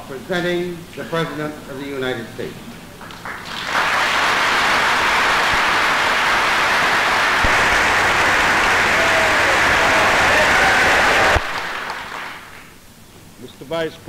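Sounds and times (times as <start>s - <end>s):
audience applauding: 3.0s - 12.7s.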